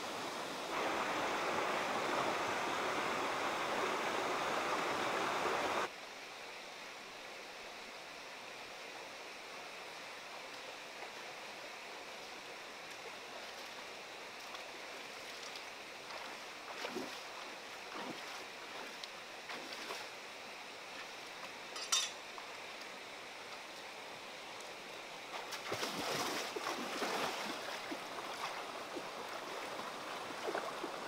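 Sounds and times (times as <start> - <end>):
stream running over rocks: 0.0 - 31.0
feet splashing in water: 14.4 - 20.1, 25.3 - 31.0.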